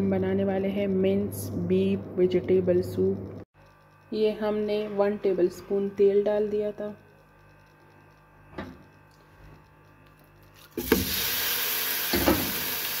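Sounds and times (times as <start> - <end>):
meat sizzling in hot oil: 10.6 - 13.0.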